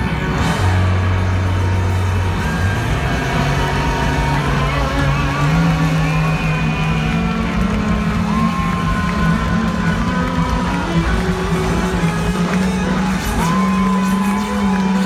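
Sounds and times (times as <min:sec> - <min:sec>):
funk rock band playing live: 0:00.0 - 0:04.3.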